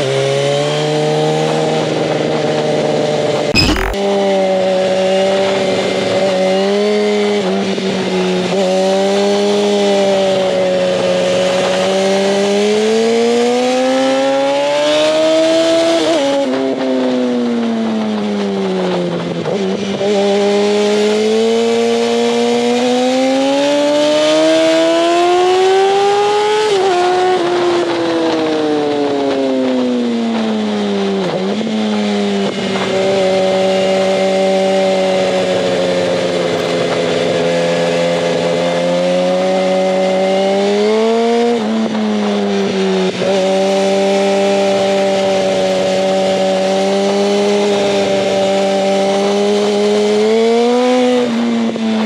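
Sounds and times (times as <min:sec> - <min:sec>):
motorcycle engine revving: 0:00.1 - 0:17.4, 0:29.0 - 0:52.0.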